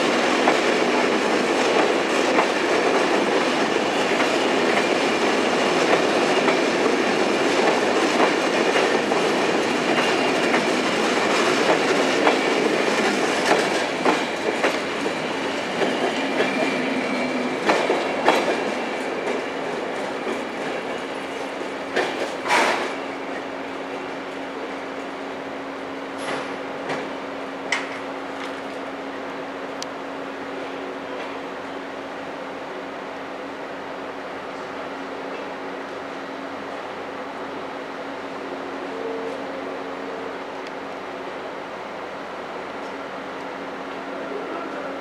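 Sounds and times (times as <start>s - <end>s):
train wheels clattering over rails: 0.0s - 24.7s, 26.2s - 28.8s.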